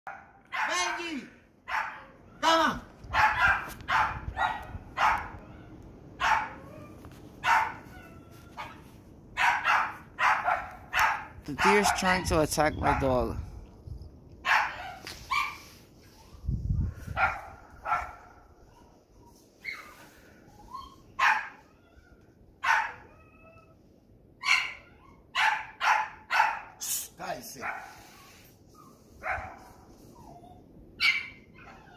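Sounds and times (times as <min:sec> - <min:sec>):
dog barking: 0:00.1 - 0:01.0, 0:01.7 - 0:02.2, 0:03.1 - 0:05.4, 0:06.2 - 0:06.6, 0:07.4 - 0:07.9, 0:09.4 - 0:12.2, 0:14.4 - 0:15.6, 0:17.1 - 0:18.4, 0:21.2 - 0:21.6, 0:22.6 - 0:23.1, 0:24.4 - 0:26.8, 0:27.6 - 0:28.0, 0:29.2 - 0:29.7, 0:31.0 - 0:31.8.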